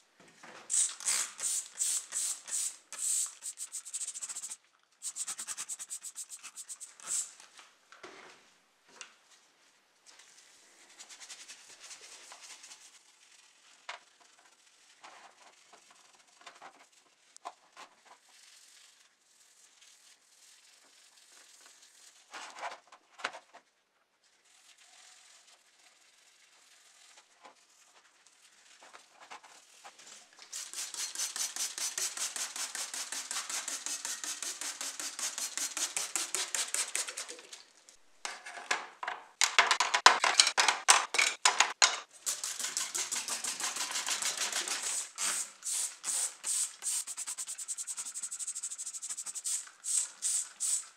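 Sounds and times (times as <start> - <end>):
rapid rasping strokes: 0.7 - 7.3, 30.6 - 37.3, 42.2 - 50.9.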